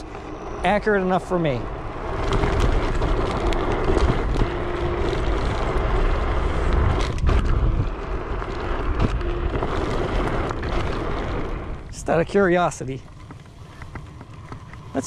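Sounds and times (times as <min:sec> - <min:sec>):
electric motor hum: 0:00.0 - 0:12.2
tyre rumble on asphalt: 0:00.0 - 0:15.0
wind on microphone: 0:01.6 - 0:12.0.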